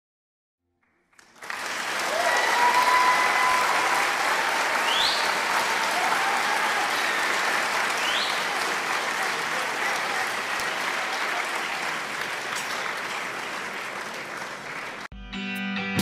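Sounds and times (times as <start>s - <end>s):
audience applauding: 1.1s - 15.1s
cheers: 1.4s - 15.1s.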